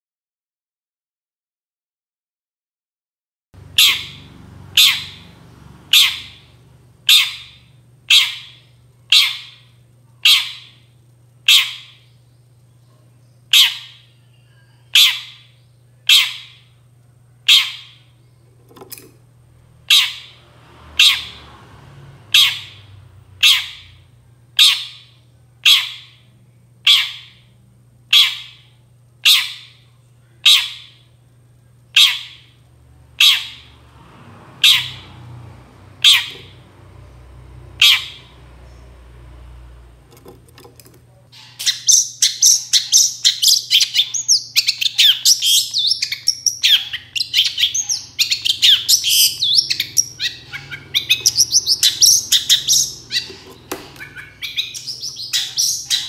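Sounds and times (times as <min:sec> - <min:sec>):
steady low hum: 0:03.6 - 0:56.0
shrike harsh calls: 0:41.3 - 0:56.0.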